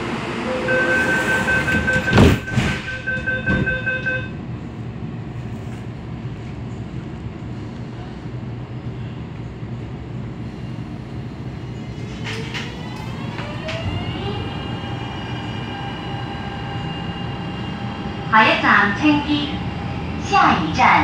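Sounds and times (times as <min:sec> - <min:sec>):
train doors sliding shut: 0:00.0 - 0:04.2, 0:11.8 - 0:14.5
train humming: 0:00.0 - 0:21.0
high warning beeps: 0:00.5 - 0:04.3.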